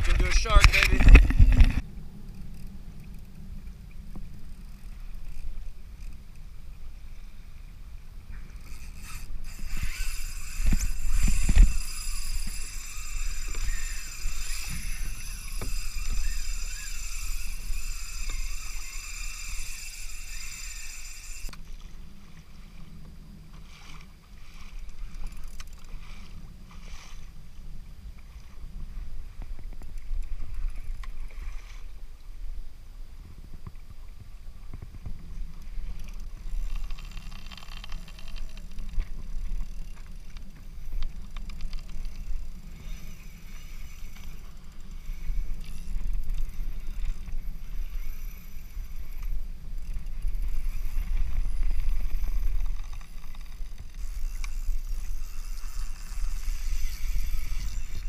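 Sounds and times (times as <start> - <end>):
wind rumbling on microphone: 0.0 - 58.0
high steady whine: 8.8 - 21.6.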